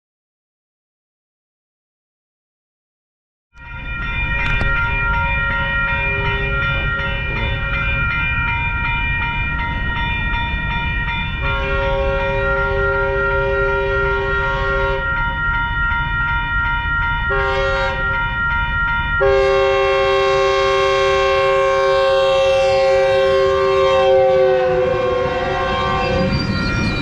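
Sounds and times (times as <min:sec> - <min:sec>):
crossing bell ringing: 0:03.6 - 0:27.0
passing train rumble: 0:03.6 - 0:27.0
train horn blasts: 0:06.0 - 0:07.0, 0:11.4 - 0:15.2, 0:17.3 - 0:18.3, 0:19.2 - 0:26.5.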